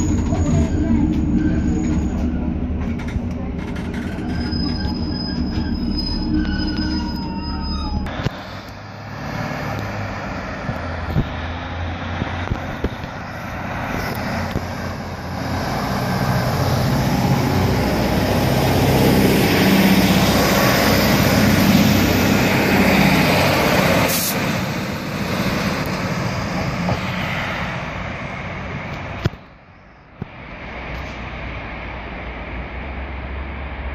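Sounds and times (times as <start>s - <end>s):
wheels on rails: 0.0s - 8.1s
diesel train engine drone: 0.0s - 33.9s.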